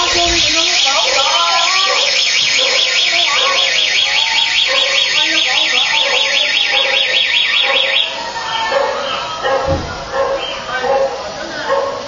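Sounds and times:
electronic alarm warbling: 0.0 - 9.5.

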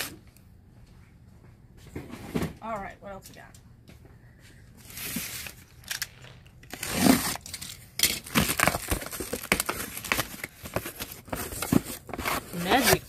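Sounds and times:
packaging crinkling and tearing: 4.8 - 13.0.

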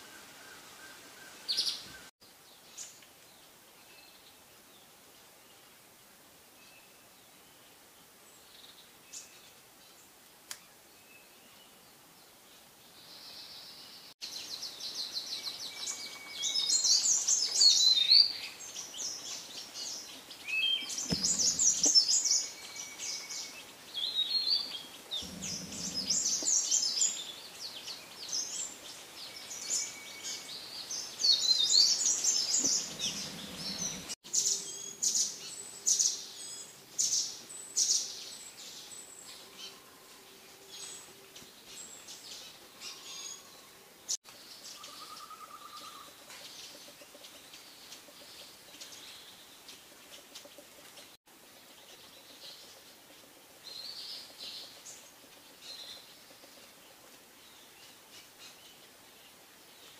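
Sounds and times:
songbird warbling: 20.4 - 27.5, 29.4 - 35.4, 44.7 - 46.2.

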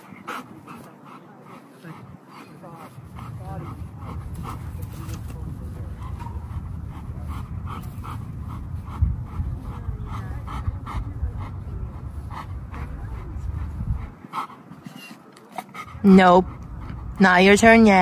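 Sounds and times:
dog panting: 0.0 - 18.0
low rumble: 2.9 - 14.3.

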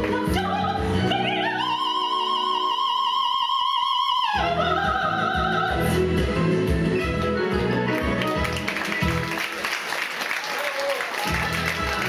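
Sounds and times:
soprano singing: 0.0 - 7.4
musical accompaniment: 0.0 - 12.0.

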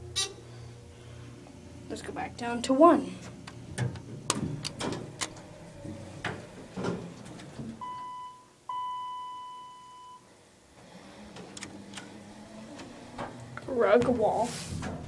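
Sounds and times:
elevator electronic chime: 7.8 - 10.2.

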